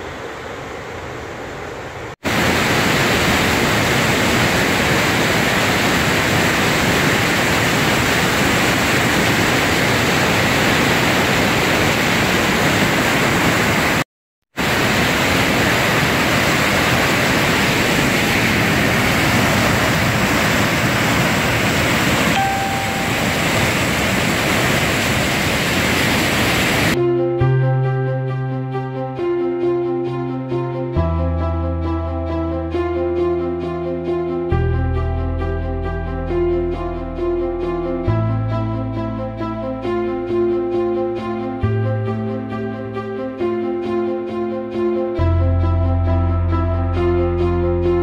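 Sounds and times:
water rushing over weir: 0:02.2 - 0:14.0, 0:14.6 - 0:27.0.

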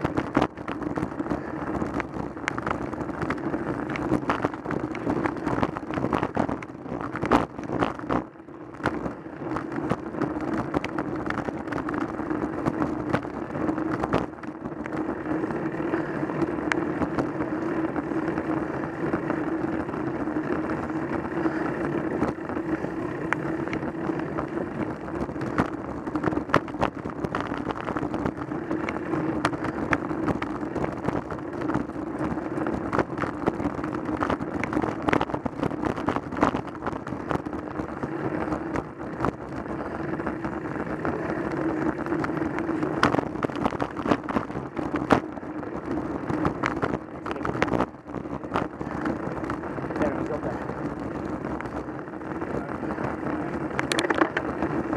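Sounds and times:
tyre rumble on road: 0:00.0 - 0:54.9
wind on microphone: 0:00.0 - 0:54.9
camera mount rattling: 0:53.8 - 0:54.5.

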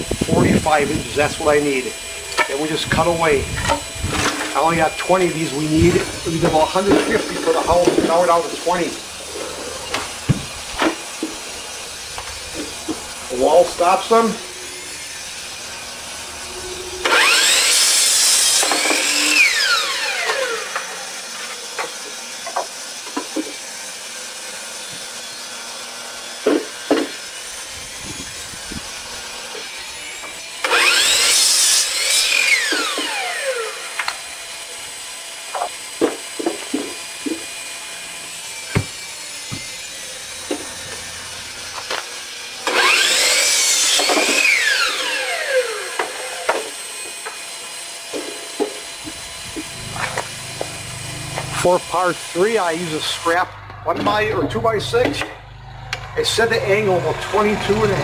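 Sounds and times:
miter saw cutting wood: 0:00.0 - 0:58.0.

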